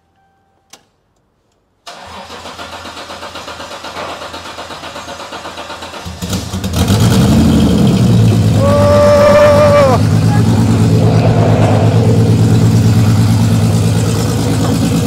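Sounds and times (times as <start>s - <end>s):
engine cranking by starter: 1.8s - 10.9s.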